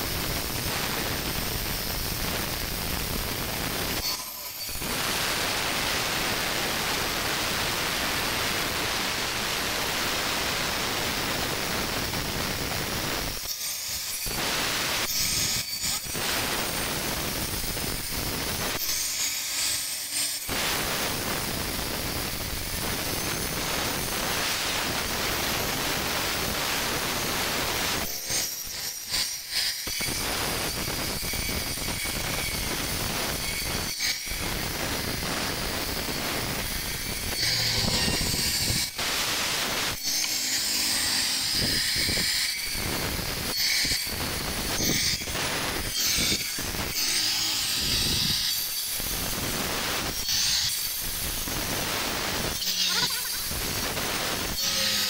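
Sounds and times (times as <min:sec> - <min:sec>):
angle grinder grinding stone: 0:00.3 - 0:06.6, 0:28.2 - 0:55.0.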